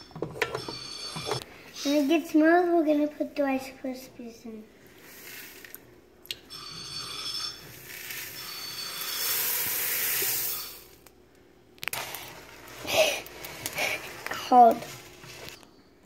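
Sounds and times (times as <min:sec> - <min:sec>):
cereal pouring into pot: 0:04.9 - 0:05.9, 0:06.7 - 0:11.0, 0:11.8 - 0:15.6.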